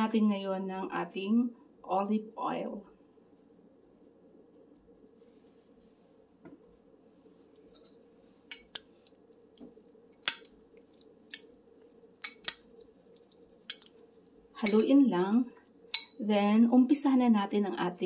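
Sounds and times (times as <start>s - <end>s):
faint steady hum: 0.0s - 18.0s
metal utensil clinking on glass bowl: 8.5s - 8.8s, 12.2s - 12.6s, 13.7s - 13.9s, 14.6s - 14.9s, 15.9s - 16.2s.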